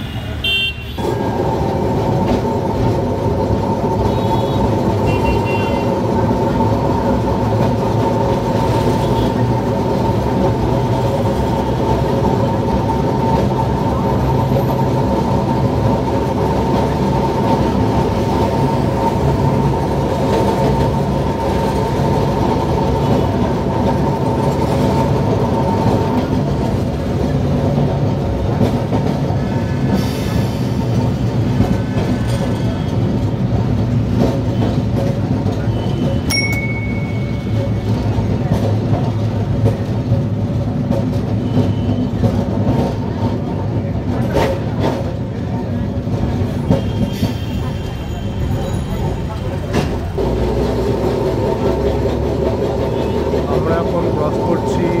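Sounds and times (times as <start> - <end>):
wheels rumbling on rails: 0.0 - 55.0
tram motor whine: 0.9 - 27.2.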